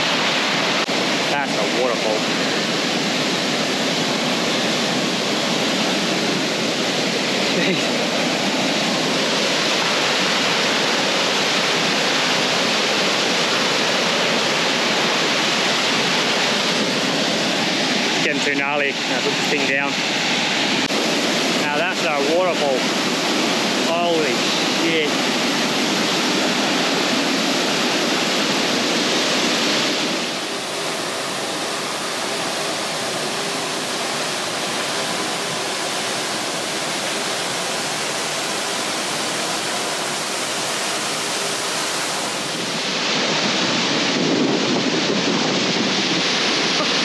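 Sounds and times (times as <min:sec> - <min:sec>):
waterfall rushing: 0:00.0 - 0:47.0.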